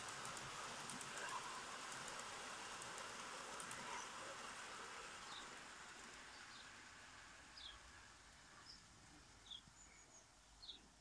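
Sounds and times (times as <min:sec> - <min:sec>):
small bird chirping: 0:07.6 - 0:07.8, 0:08.6 - 0:11.0.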